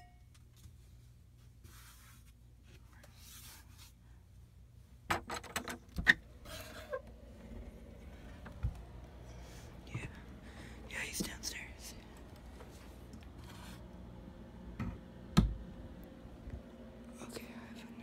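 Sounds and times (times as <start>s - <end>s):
phone and clothing rustling: 5.3s - 14.1s.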